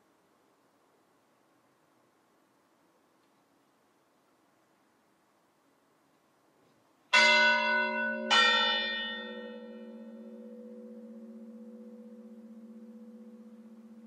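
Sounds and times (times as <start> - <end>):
large bell ringing: 7.1 - 14.0.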